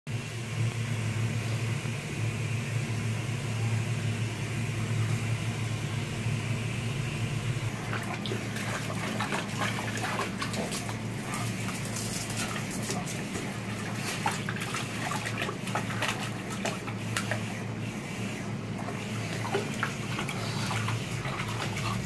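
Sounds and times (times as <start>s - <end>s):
water splashing: 7.7s - 17.7s, 18.8s - 22.0s.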